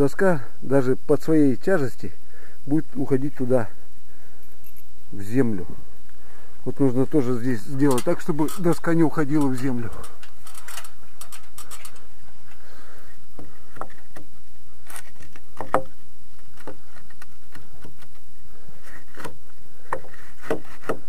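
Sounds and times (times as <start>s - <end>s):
wood knocking and clicking: 15.6s - 15.9s.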